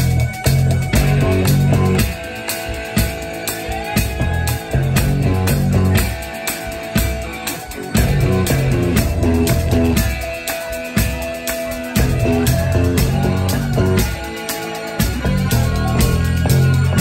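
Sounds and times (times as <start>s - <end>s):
bass notes: 0.0s - 6.3s, 7.7s - 10.3s, 11.8s - 14.2s, 15.0s - 17.0s
electric guitar: 0.0s - 17.0s
live rock band playing: 0.0s - 17.0s.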